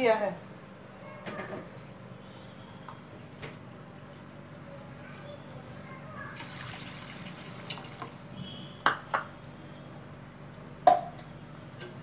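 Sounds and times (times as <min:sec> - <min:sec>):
water pouring into pan: 0:06.3 - 0:08.3.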